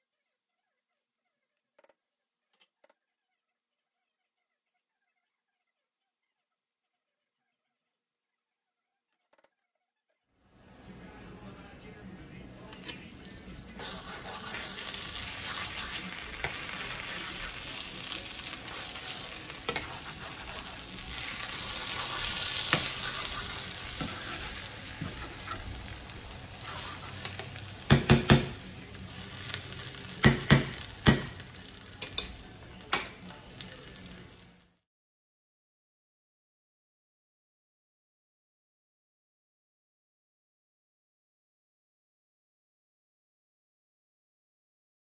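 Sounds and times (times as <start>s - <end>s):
spoon stirring: 12.7s - 28.6s
eggplants sizzling in a skillet: 12.8s - 34.8s
spoon knocking against pan: 27.8s - 28.6s, 30.2s - 31.4s.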